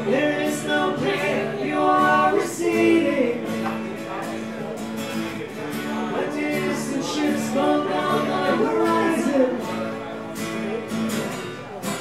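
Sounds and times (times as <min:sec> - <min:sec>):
person singing: 0:00.0 - 0:03.6, 0:06.0 - 0:09.8
strummed acoustic guitars: 0:00.0 - 0:12.0.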